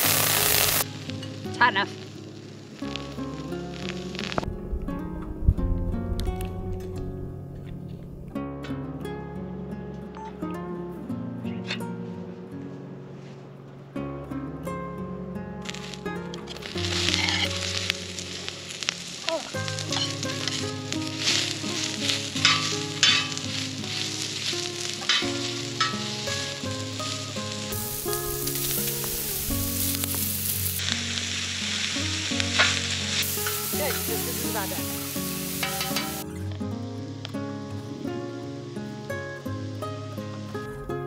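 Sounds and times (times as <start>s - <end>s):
meat and vegetables sizzling: 0.0s - 8.3s, 15.5s - 41.0s
guitar music: 0.0s - 41.0s
stirring and scraping: 19.8s - 26.9s.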